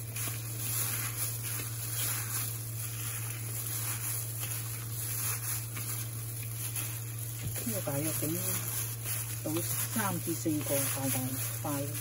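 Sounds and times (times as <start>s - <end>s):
hand squishing minced meat: 0.0s - 12.0s
steady low hum: 0.0s - 12.0s.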